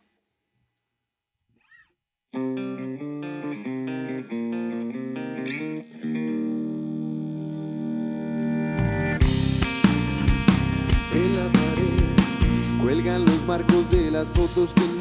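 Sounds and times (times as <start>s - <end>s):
electric guitar riff: 2.4s - 15.0s.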